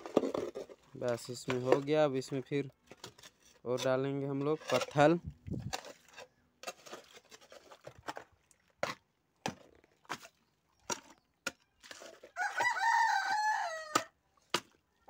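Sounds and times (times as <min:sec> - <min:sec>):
rooster crowing: 0:12.4 - 0:14.1.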